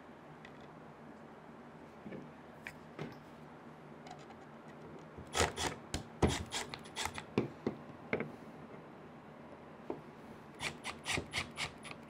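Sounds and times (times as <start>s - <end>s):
impact driver driving a screw: 5.3s - 7.3s, 10.6s - 12.0s.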